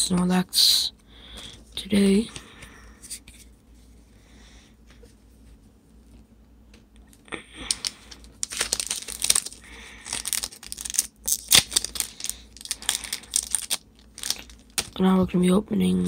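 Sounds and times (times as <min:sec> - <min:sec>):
foil wrapper crinkling: 0:07.6 - 0:15.0.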